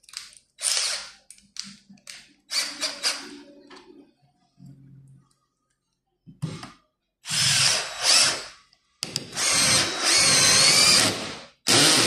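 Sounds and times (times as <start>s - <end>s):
cordless drill driving screw: 7.3s - 8.5s, 9.3s - 12.0s.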